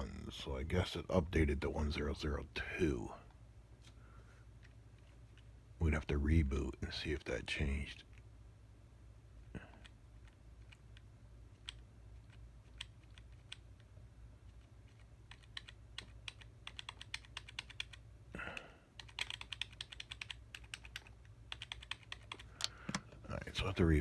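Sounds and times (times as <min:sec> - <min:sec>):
low steady hum: 0:00.0 - 0:24.0
keyboard keys clicking: 0:15.3 - 0:18.0, 0:19.0 - 0:23.1.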